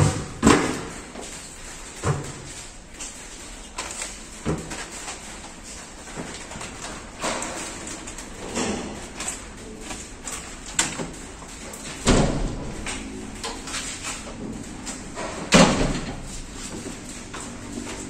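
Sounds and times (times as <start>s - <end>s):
knocks and bangs on metal cabinet: 0.0s - 1.1s, 11.8s - 13.7s, 14.3s - 16.5s.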